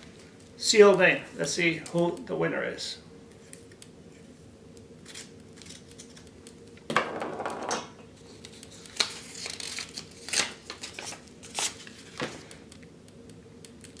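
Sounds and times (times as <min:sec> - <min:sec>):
paper rustling and crackling: 0:08.3 - 0:12.6.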